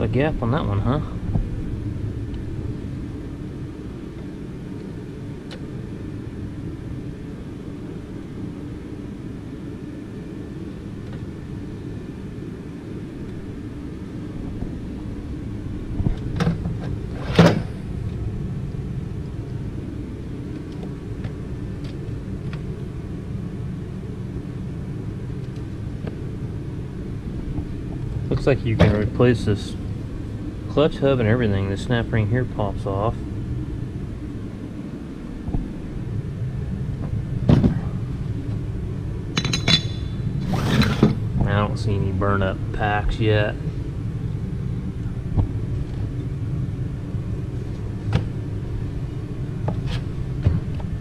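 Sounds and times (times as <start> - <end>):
steady low rumble: 0.0 - 51.0
metal parts clicking and clanking: 39.4 - 41.1.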